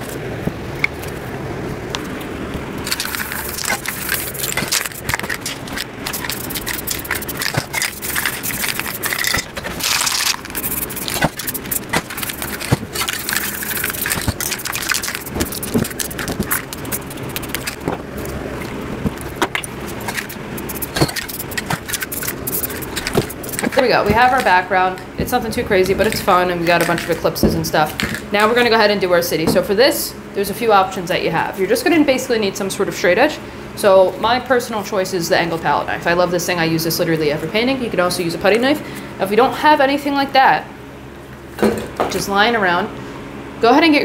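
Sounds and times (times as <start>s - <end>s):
cans and tools clicking: 2.9s - 24.6s, 25.8s - 28.6s.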